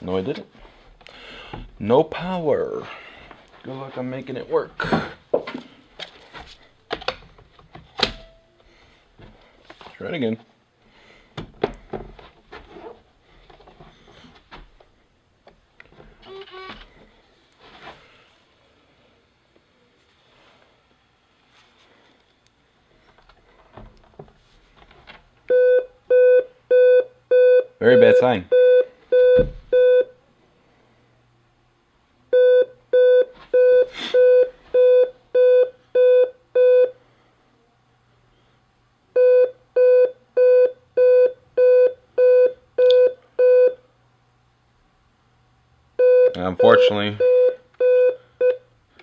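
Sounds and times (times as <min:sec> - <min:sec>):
laptop beeps: 0:25.5 - 0:30.1, 0:46.0 - 0:48.6.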